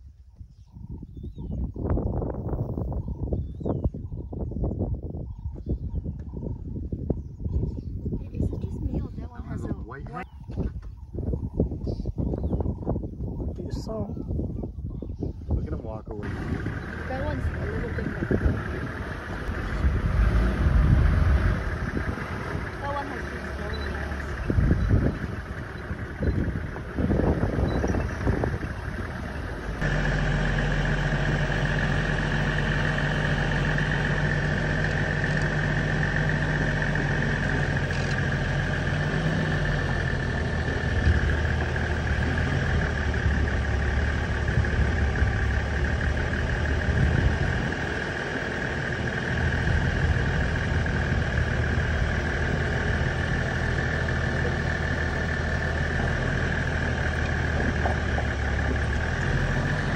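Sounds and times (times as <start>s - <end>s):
vehicle engine idling: 14.9s - 59.9s.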